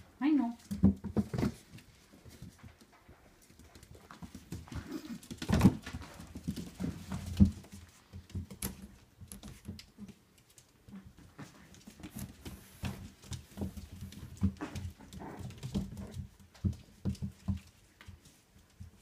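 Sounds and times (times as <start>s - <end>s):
puppy paws and claws pattering: 0.0s - 19.0s.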